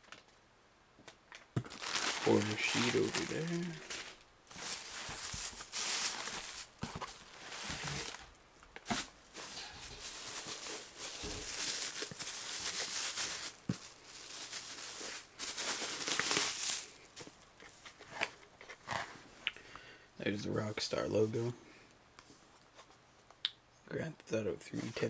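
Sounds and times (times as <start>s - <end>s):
plastic bag crinkling: 1.3s - 19.0s.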